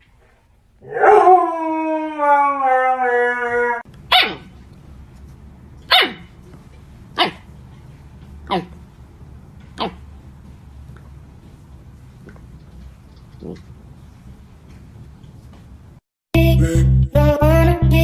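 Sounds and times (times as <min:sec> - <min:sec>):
husky howling: 0:00.8 - 0:03.9
puppy yipping: 0:04.1 - 0:04.5, 0:05.9 - 0:06.3, 0:07.2 - 0:07.4.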